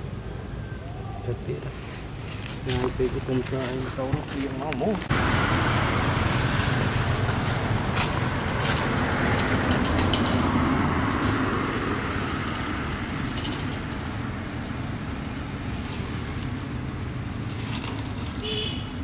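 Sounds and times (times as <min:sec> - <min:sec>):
low rumbling background noise: 0:00.0 - 0:19.0.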